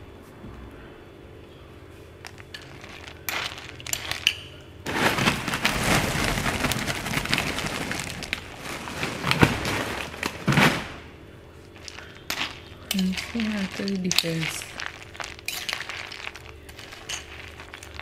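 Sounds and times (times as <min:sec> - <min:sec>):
dry kibble rattling in a bowl: 0:02.2 - 0:10.8, 0:11.7 - 0:18.0.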